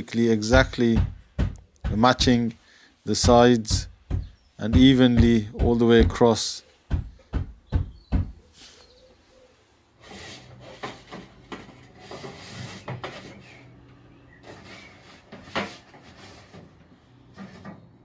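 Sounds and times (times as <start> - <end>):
hand scraping and rubbing: 8.3 - 18.0.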